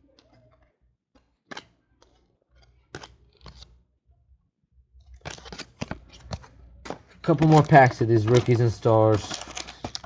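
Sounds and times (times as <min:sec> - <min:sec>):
cards flicking and sliding: 0:01.4 - 0:03.8, 0:05.2 - 0:10.0.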